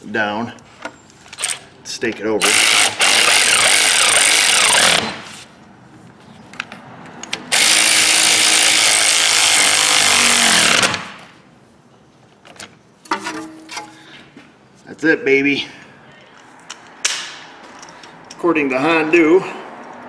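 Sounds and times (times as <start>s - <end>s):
power ratchet whirring: 2.4s - 5.4s, 7.5s - 11.2s.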